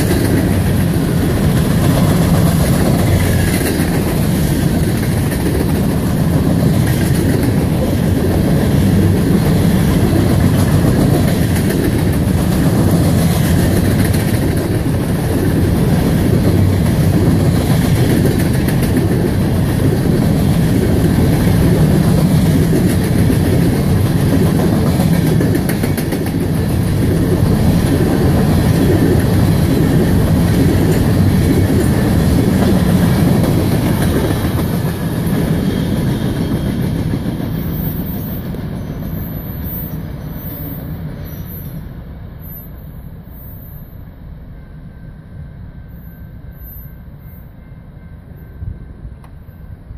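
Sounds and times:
clicking train wheels: 0:00.0 - 0:43.8
freight train rumbling past: 0:00.0 - 0:49.9.

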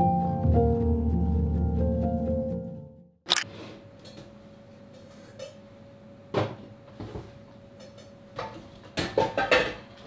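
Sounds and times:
kitchen knocks and clinks: 0:08.4 - 0:09.9.

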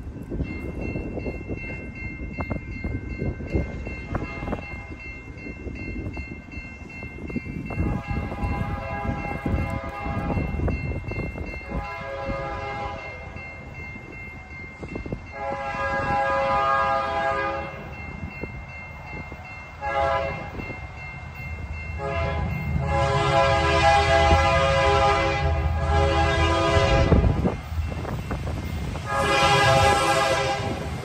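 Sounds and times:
diesel locomotive rumble: 0:00.0 - 0:31.0
locomotive air horn blasts: 0:04.1 - 0:04.9, 0:07.8 - 0:10.5, 0:11.7 - 0:13.2, 0:15.3 - 0:17.8, 0:19.8 - 0:20.6, 0:22.0 - 0:27.6, 0:29.0 - 0:31.0.

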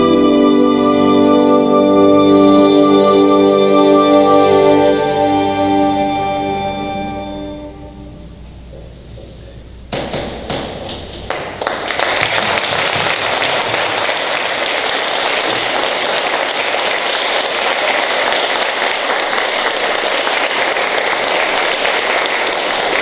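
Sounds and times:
audience applauding: 0:10.5 - 0:23.0.

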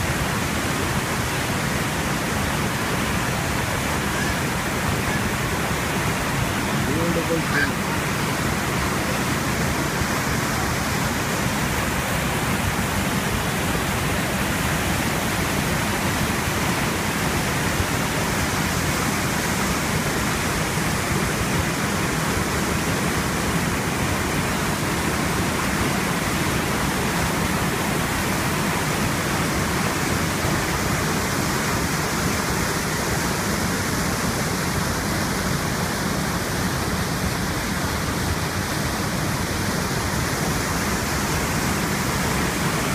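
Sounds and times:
waterfall and river rapids rushing: 0:00.0 - 0:42.9.

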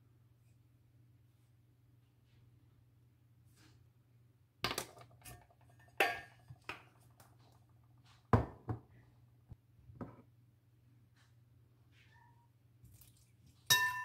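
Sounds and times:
utensils knocking ceramic bowl: 0:13.7 - 0:14.0.

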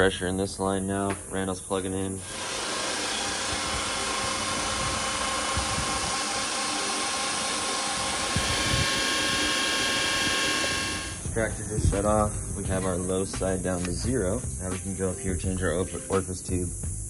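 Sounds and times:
recovery machine motor whir: 0:02.2 - 0:11.3.

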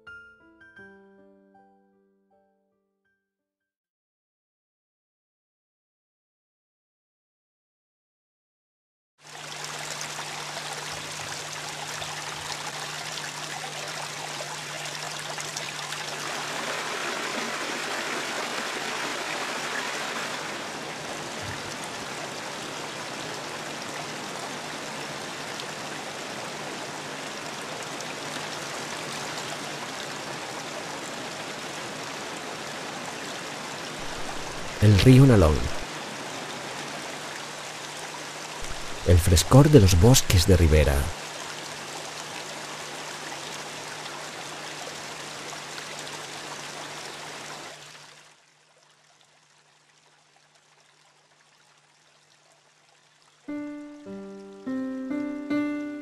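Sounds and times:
stream rushing over boulders: 0:09.2 - 0:53.5.

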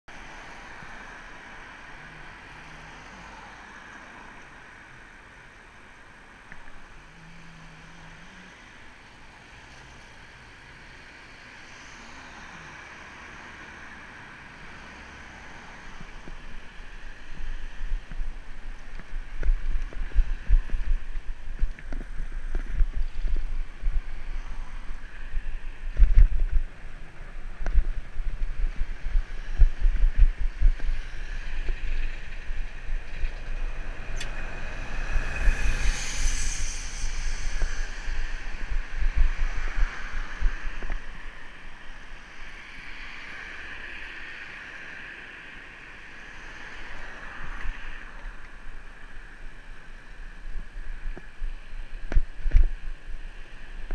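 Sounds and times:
road traffic noise: 0:00.1 - 0:53.9
vehicle passing: 0:11.7 - 0:42.0
wind buffeting microphone: 0:16.0 - 0:43.0, 0:48.2 - 0:53.9.

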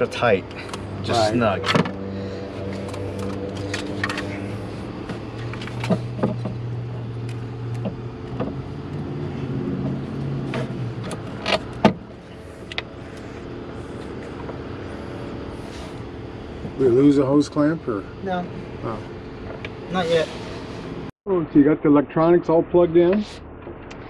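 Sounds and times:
low mechanical hum: 0:00.0 - 0:21.1
clicks and clanks of tools: 0:02.8 - 0:04.4.

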